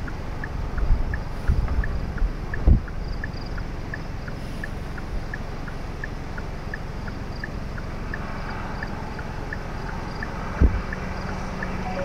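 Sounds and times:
wind blowing over microphone: 0.8 - 2.9
faint high chirps: 11.8 - 12.0.

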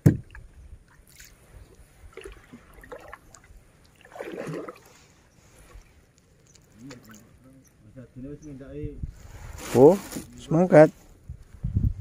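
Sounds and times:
knock on wooden canoe hull: 0.0 - 0.4
paddle dipping in water: 0.0 - 7.4
water splash: 2.1 - 5.0.

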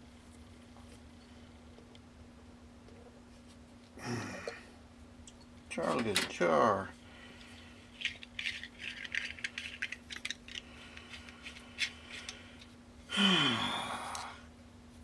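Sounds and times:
steady low hum: 0.0 - 15.0
objects clicking and rattling: 7.9 - 12.7
groaning voice: 13.1 - 14.4.

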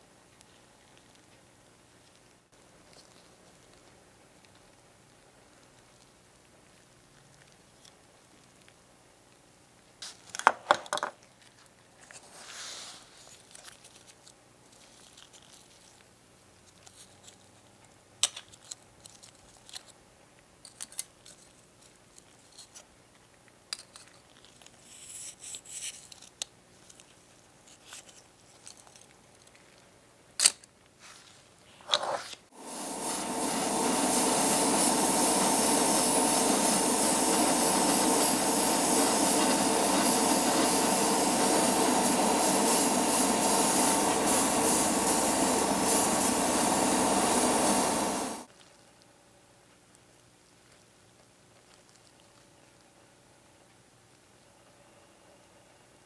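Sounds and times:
rustles and clicks of plastic parts: 0.2 - 6.2, 10.0 - 12.3, 13.2 - 32.5
light sanding strokes: 32.1 - 48.5
airbrush hissing: 32.5 - 48.5.

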